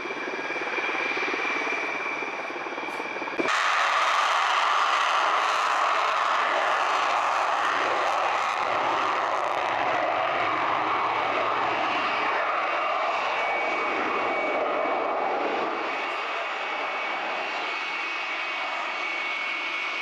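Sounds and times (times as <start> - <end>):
jet engine roar with high whine: 0.0 - 20.0.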